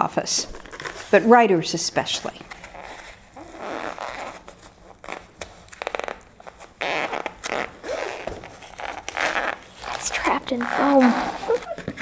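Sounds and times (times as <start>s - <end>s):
packing tape ripping: 2.4s - 12.0s.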